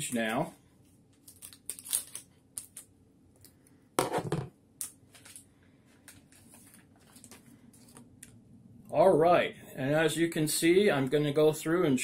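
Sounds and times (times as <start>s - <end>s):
wrapper rustling: 1.1s - 2.8s.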